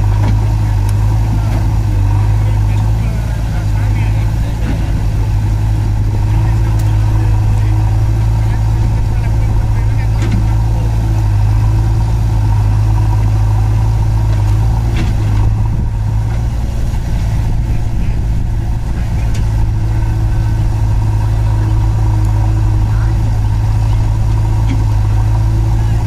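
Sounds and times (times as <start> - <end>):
backhoe loader engine: 0.0 - 26.0
tractor diesel engine idling: 0.0 - 26.0.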